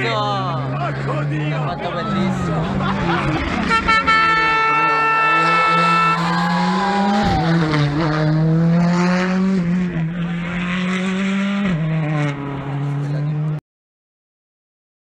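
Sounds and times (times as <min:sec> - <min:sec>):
rally car engine revving: 0:00.0 - 0:13.6
horn blaring: 0:01.9 - 0:09.8.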